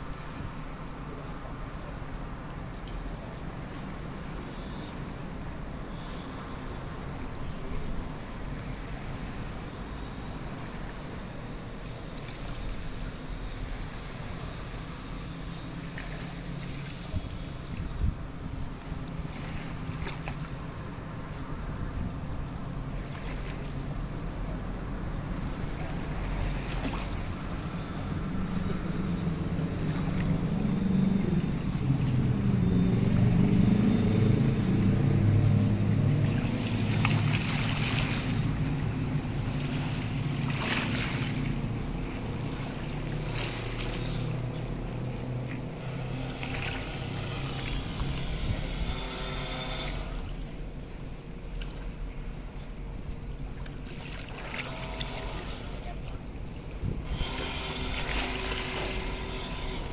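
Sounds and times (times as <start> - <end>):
boat motor droning: 0.0 - 59.9
lapping water: 25.4 - 33.8, 34.5 - 48.9, 51.4 - 59.4.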